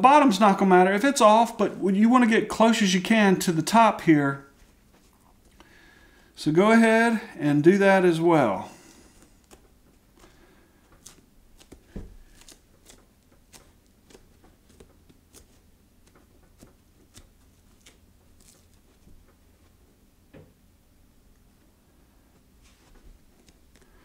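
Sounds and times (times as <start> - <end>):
hands handling foam rubber: 8.9 - 20.0.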